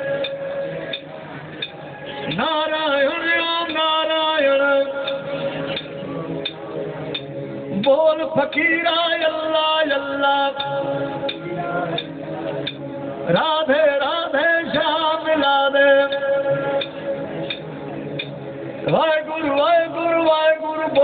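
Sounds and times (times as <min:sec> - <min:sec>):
man singing into microphone: 0:00.0 - 0:01.2, 0:02.0 - 0:06.6, 0:07.7 - 0:17.7, 0:18.8 - 0:21.0
percussive clicks: 0:16.8 - 0:19.0.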